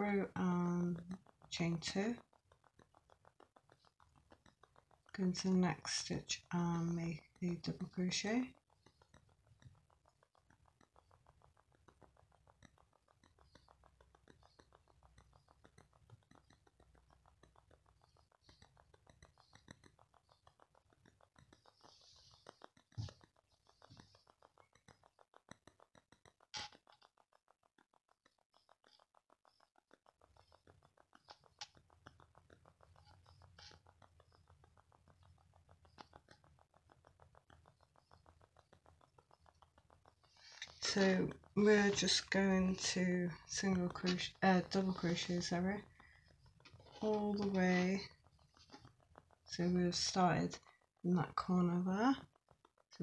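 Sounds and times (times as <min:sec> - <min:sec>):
yarn scratching on crochet hook: 0:00.6 - 0:27.2, 0:35.8 - 0:53.0.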